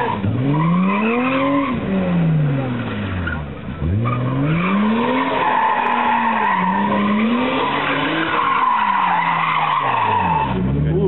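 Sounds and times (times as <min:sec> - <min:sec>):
car engine revving: 0:00.0 - 0:11.0
tyres squealing: 0:04.0 - 0:10.7.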